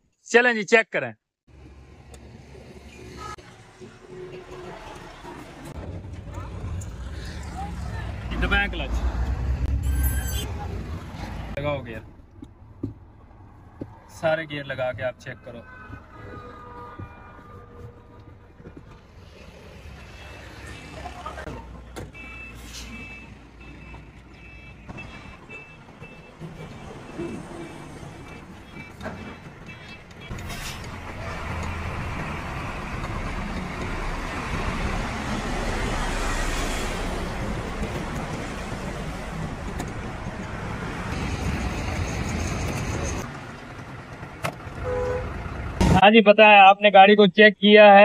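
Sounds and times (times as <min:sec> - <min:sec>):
truck reversing beeper: 0:09.7 - 0:10.5, 0:22.2 - 0:29.9
diesel engine running: 0:37.1 - 0:46.0.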